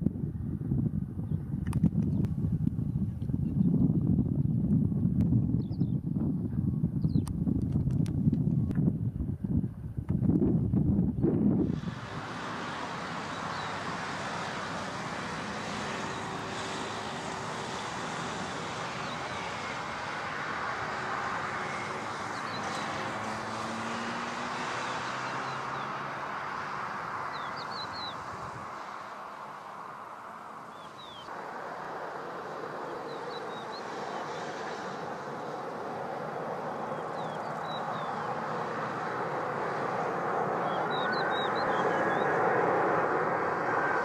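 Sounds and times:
jet engines roaring: 11.5s - 44.0s.

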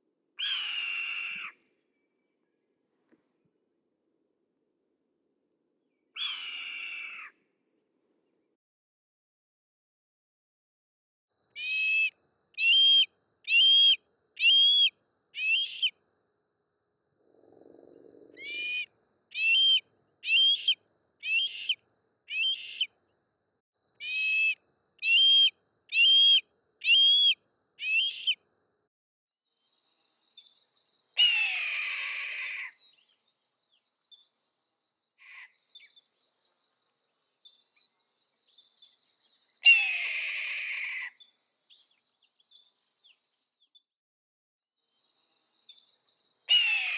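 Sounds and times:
hawk whistled calls: 11.6s - 15.9s, 18.4s - 22.9s, 24.0s - 28.4s, 46.5s - 46.9s.

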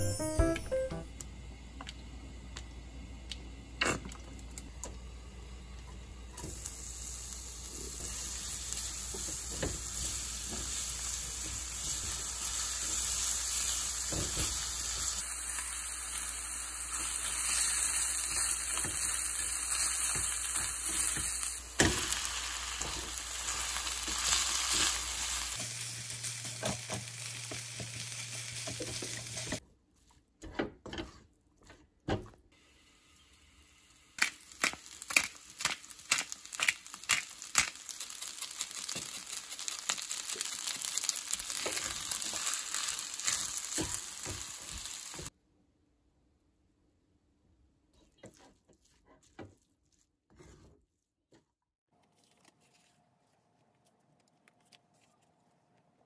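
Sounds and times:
food sizzling in oil: 6.4s - 29.6s, 32.8s - 45.3s.

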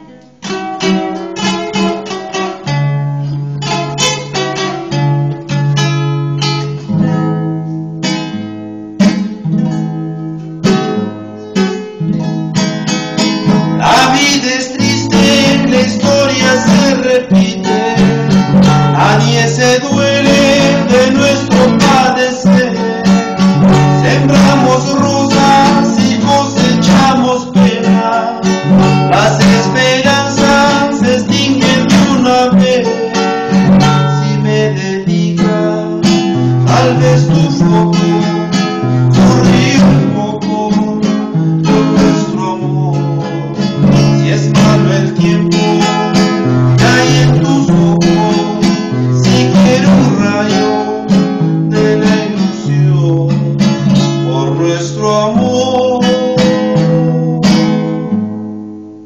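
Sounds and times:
classical guitar: 0.0s - 59.0s
man singing: 13.8s - 58.1s.

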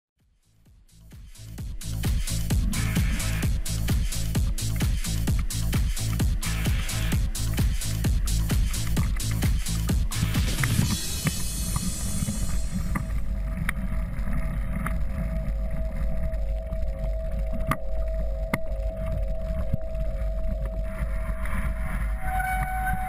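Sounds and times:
wind rumbling on microphone: 2.4s - 23.0s
faint steady tone: 11.3s - 23.0s.

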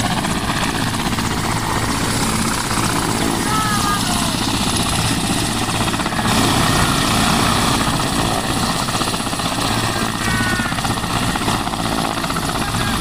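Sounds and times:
helicopter engine and rotor beat: 0.0s - 13.0s.

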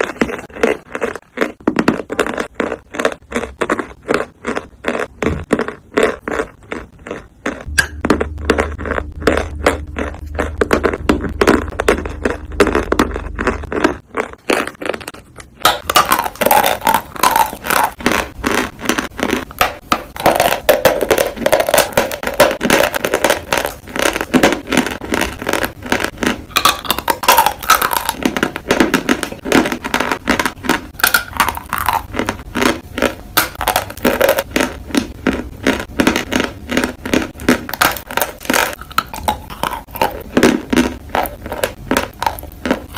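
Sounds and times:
chalk crunching and chewing: 0.0s - 42.9s
low hum: 7.6s - 28.4s.

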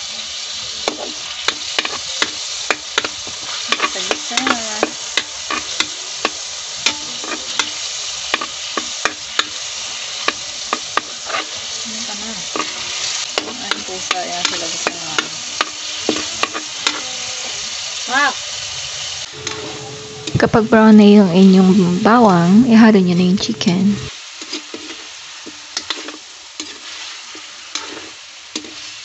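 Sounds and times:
garlic sizzling in oil: 0.0s - 29.0s
utensil scraping a pan: 0.9s - 9.6s, 10.2s - 17.2s, 24.4s - 29.0s.

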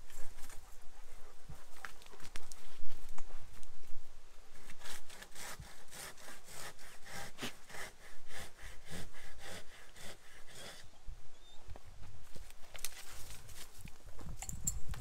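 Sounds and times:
hand saw cutting wood: 4.5s - 10.8s.

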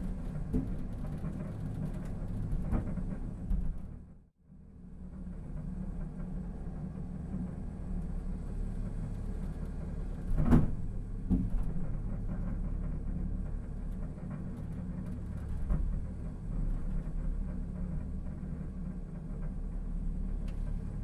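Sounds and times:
sky capsule car rumbling on track: 0.0s - 21.0s.

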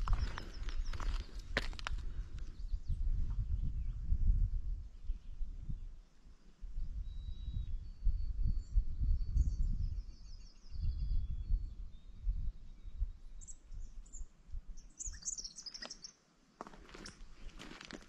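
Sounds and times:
songbirds singing: 0.0s - 4.2s, 4.8s - 16.2s
low rumble on microphone: 0.0s - 6.0s, 6.6s - 14.8s.

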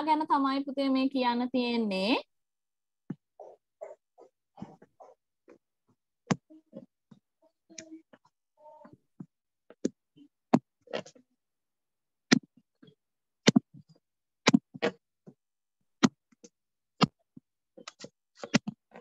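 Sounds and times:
sharp taps and knocks: 13.5s - 13.8s, 14.5s - 14.7s.

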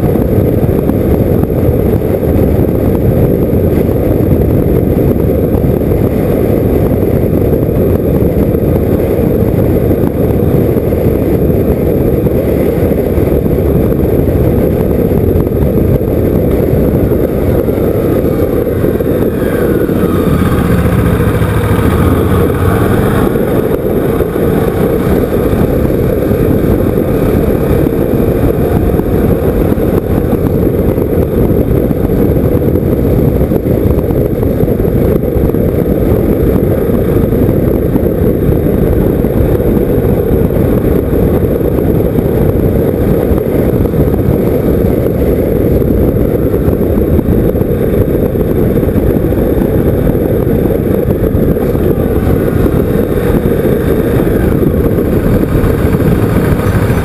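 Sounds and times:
wind rush: 0.0s - 57.0s
motorcycle engine: 3.6s - 37.3s, 47.7s - 57.0s.

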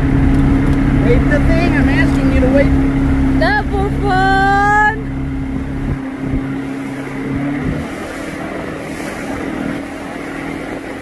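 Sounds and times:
motorboat engine running: 0.0s - 11.0s
rush of wind and water: 0.0s - 11.0s
person yelling: 3.4s - 5.0s.

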